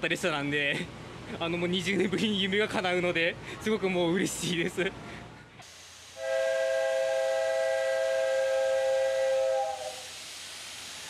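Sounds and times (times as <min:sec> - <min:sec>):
steam hissing: 0:05.6 - 0:11.0
steam whistle blast: 0:05.7 - 0:11.0.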